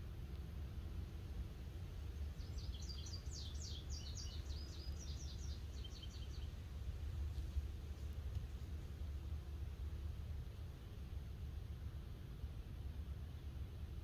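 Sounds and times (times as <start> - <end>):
steady low rumble: 0.0 - 14.0
songbird singing: 1.9 - 8.2.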